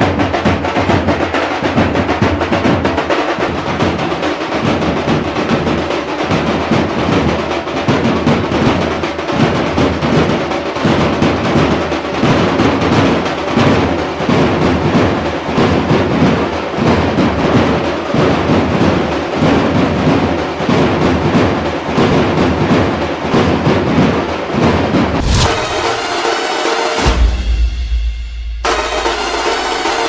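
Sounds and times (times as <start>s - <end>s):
drum-heavy music with steady beat: 25.1s - 30.0s.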